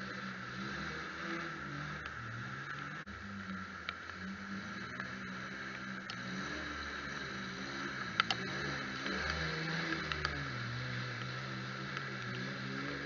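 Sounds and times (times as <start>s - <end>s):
truck engine revving: 0.0s - 13.0s
sharp clicks: 6.9s - 10.4s.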